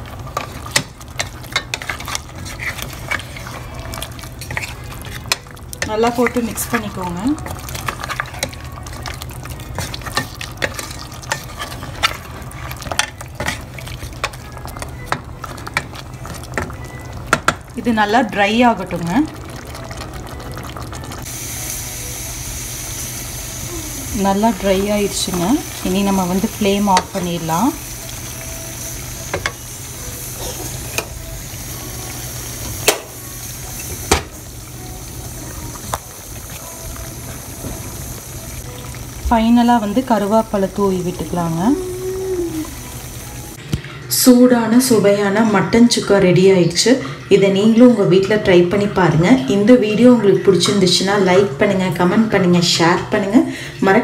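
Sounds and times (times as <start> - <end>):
meat sizzling in oil: 0.0 - 43.6
wooden spatula scraping a pot: 1.5 - 5.4, 9.7 - 12.8.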